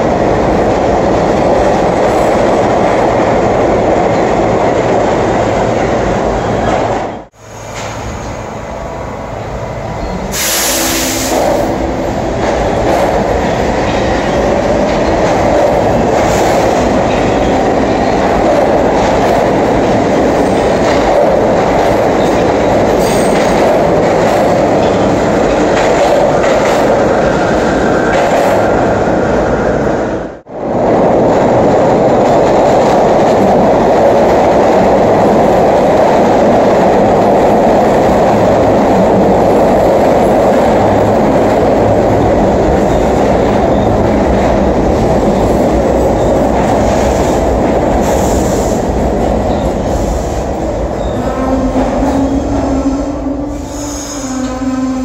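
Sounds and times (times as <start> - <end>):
subway train rumbling: 0.0 - 55.0
short sharp hiss: 10.4 - 11.6.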